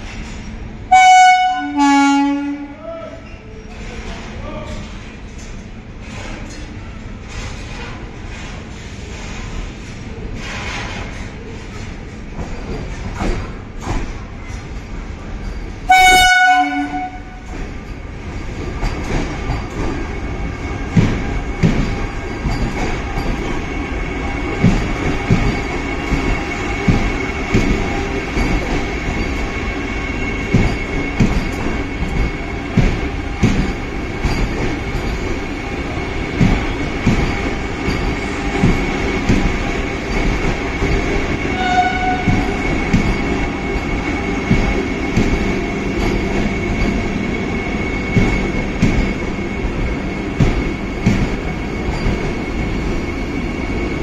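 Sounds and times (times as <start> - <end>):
train coaches rumbling past: 0.0 - 54.0
train horn blast: 0.9 - 2.8, 15.9 - 17.4, 41.5 - 42.5
wheels clacking over rail joints: 3.6 - 52.9.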